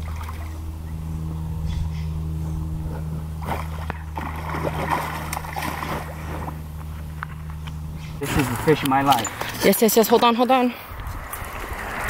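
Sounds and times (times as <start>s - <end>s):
low engine hum: 0.0s - 12.0s
fish splashing in water: 3.4s - 6.7s.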